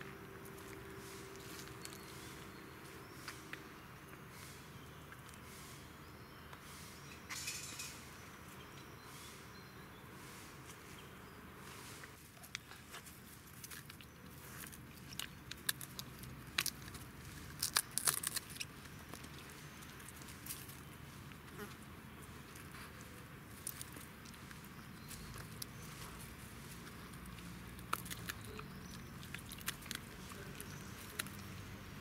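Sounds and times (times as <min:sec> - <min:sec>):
twigs clicking and crackling: 0:12.4 - 0:32.0.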